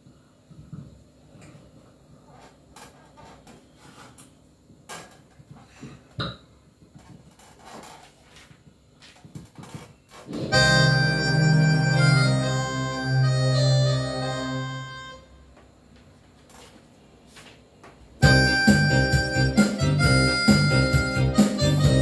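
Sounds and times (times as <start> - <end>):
instrumental backing track: 10.3 - 15.5, 18.2 - 22.0.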